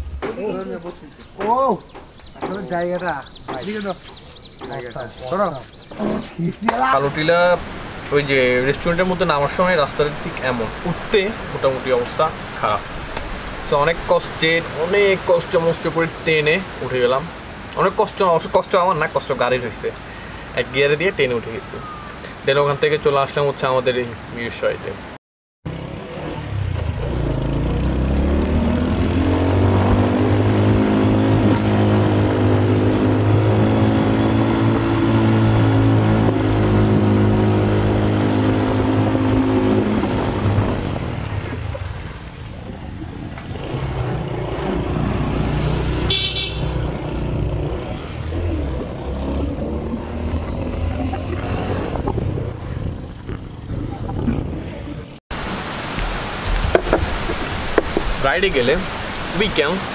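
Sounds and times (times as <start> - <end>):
short horn toot: 46.1 - 46.8
rushing noise: 55.3 - 59.9.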